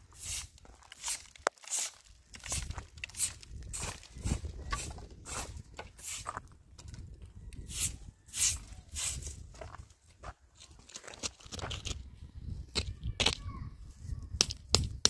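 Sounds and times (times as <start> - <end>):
broom sweeping dirt: 0.0 - 6.5, 7.6 - 9.6.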